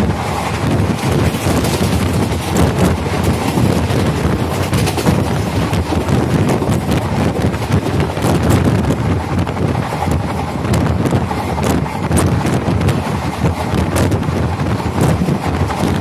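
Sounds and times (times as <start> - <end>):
train rolling rush: 0.0 - 16.0
train wheels clattering: 0.0 - 16.0
wind buffeting microphone: 0.0 - 16.0.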